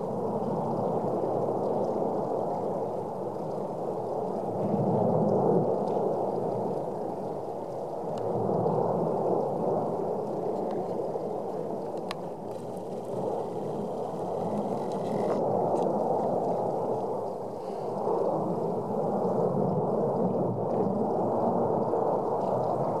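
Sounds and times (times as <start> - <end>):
volcano low rumble: 0.0 - 23.0.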